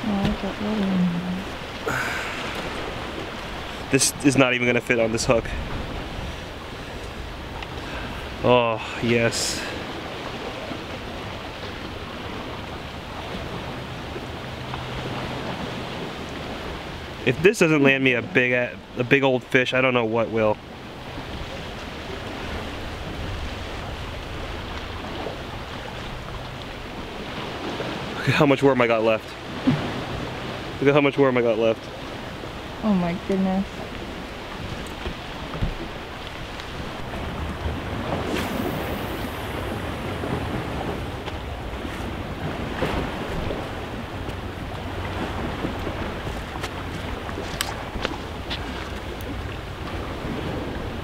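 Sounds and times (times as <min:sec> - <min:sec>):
waves on rocky shore: 0:00.0 - 0:51.0
wind: 0:00.0 - 0:51.0
wind buffeting microphone: 0:33.4 - 0:51.0.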